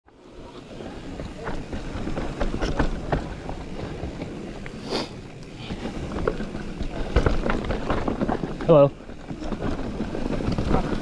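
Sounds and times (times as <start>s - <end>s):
bike knocking and rattling: 0.1s - 11.0s
bike tyres rumbling on dirt: 0.1s - 11.0s.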